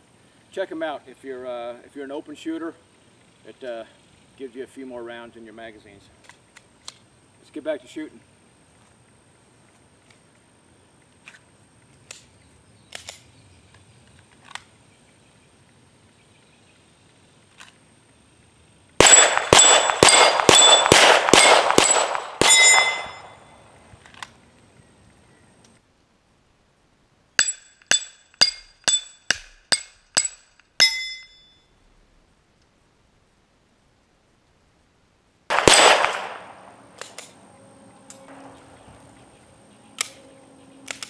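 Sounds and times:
pistol shots: 19.0 - 23.6, 35.5 - 37.4.

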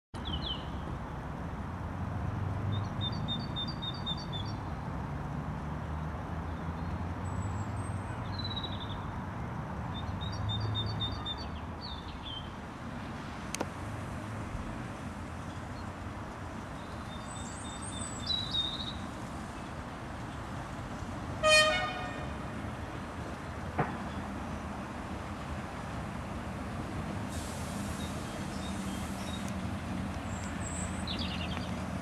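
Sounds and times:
small songbirds chirping: 0.2 - 0.9, 2.7 - 4.8, 6.0 - 9.2, 9.9 - 12.6, 15.2 - 21.1, 27.8 - 32.0.

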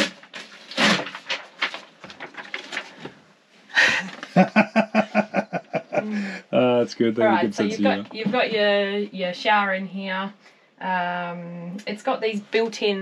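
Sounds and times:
woman laughing: 3.8 - 6.5, 7.2 - 8.6.

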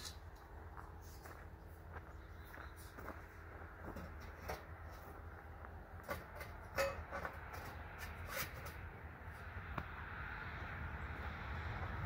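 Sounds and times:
steel tubing knocking and clanking: 3.9 - 5.1, 6.0 - 8.8.

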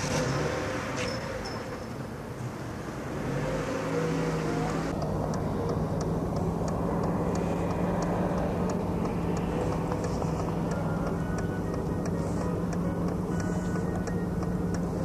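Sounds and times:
vehicle engine running: 2.4 - 15.0
faint regular ticking: 4.9 - 15.0.

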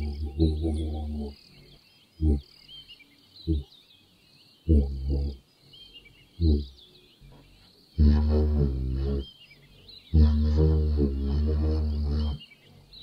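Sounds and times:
giraffe humming calls: 0.0 - 2.5, 3.4 - 3.7, 4.6 - 5.4, 6.2 - 13.0
birds chirping: 0.0 - 13.0.

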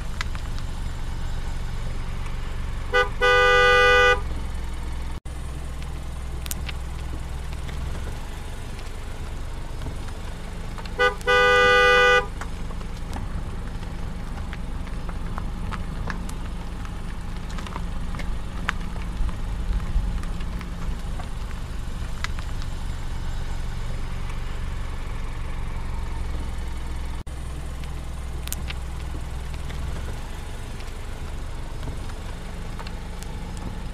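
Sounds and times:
car engine and tyres drone: 0.0 - 33.9
vehicle horn honking: 2.9 - 4.3, 11.0 - 12.4.

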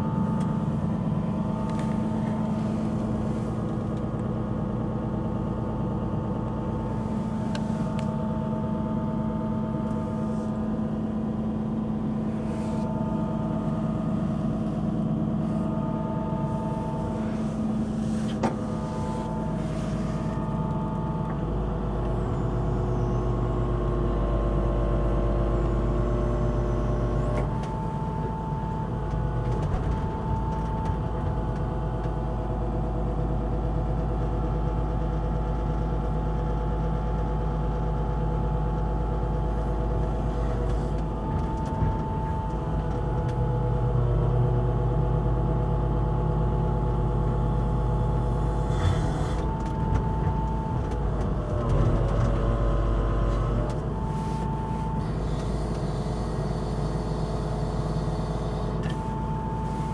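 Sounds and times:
diesel engine running: 0.0 - 59.9
hydraulic whine: 6.5 - 31.8, 46.9 - 59.9.

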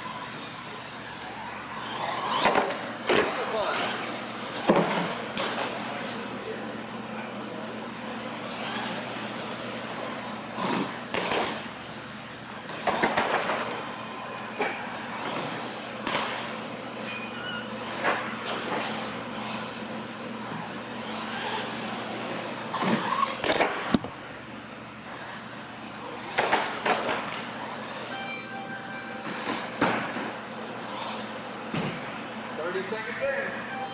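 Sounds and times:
toy truck motors and tyres: 0.0 - 6.7, 7.5 - 12.0, 12.6 - 23.6, 25.0 - 28.2, 30.6 - 31.4.

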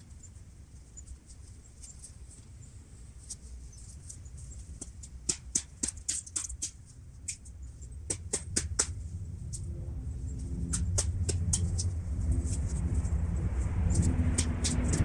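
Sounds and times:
sharp clicks and taps: 4.8 - 7.5, 8.1 - 9.0
steady low rumble: 6.8 - 15.0.

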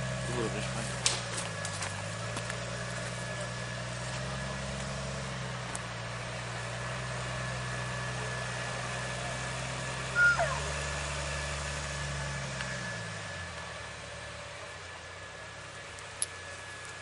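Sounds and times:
vehicle engine running: 0.0 - 17.0
high squeal: 10.1 - 10.8.

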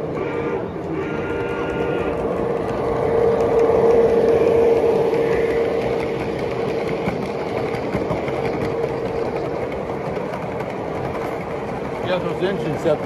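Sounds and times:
steady horn-like tone: 0.1 - 2.2
faint wheel and track clicks: 1.4 - 13.0
model trains rolling hiss: 12.0 - 13.0.

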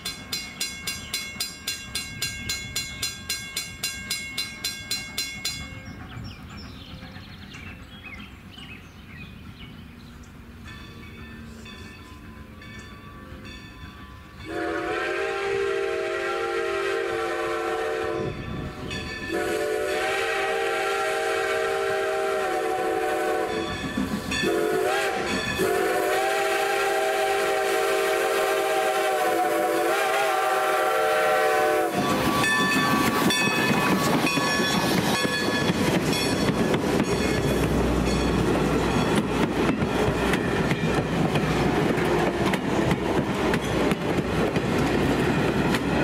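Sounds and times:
train rolling past: 0.0 - 46.0
steam whistle blasts: 14.5 - 18.5, 19.3 - 23.8, 24.4 - 34.3
wheels clicking over rail joints: 23.5 - 24.6, 31.9 - 46.0.

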